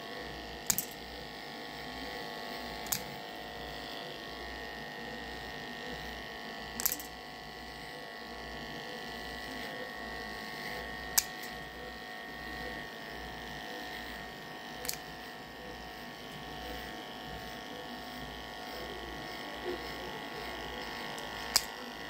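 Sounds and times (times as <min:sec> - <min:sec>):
electric hair clippers running: 0:00.0 - 0:22.0
sharp clicks: 0:02.8 - 0:03.2, 0:06.8 - 0:07.2.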